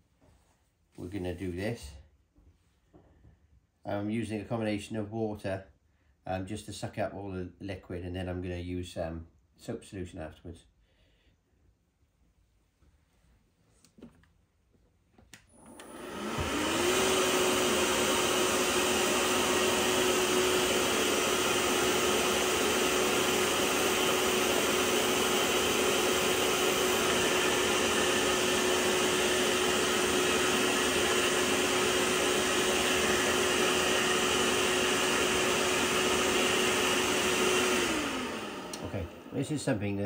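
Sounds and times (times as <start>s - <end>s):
carpet cleaner motor whining: 15.4s - 39.5s.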